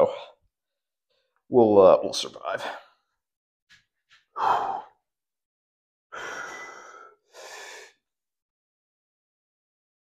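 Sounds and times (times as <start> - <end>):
heavy sigh: 4.4 - 5.0, 6.1 - 8.0.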